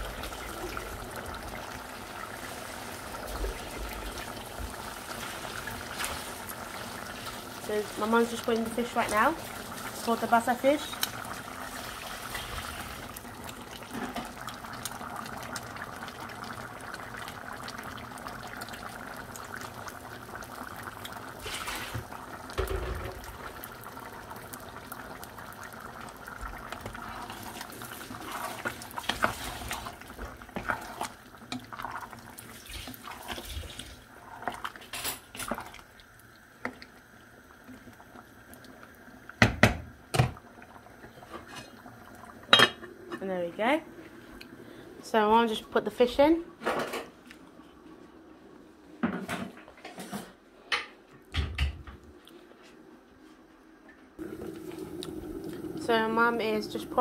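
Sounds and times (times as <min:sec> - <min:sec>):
liquid sloshing in kitchen: 0:24.3 - 0:37.0.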